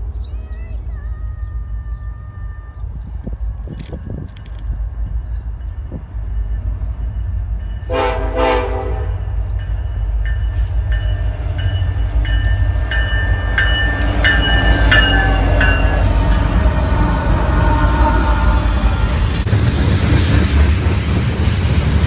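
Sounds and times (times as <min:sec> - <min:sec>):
train rumble: 0:00.0 - 0:22.0
locomotive bell ringing: 0:05.5 - 0:17.0
train horn blast: 0:07.8 - 0:09.4, 0:15.0 - 0:18.9.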